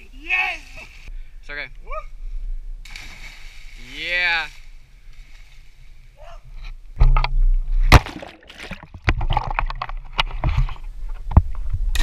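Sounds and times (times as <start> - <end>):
water splashing and sloshing: 7.0 - 11.5.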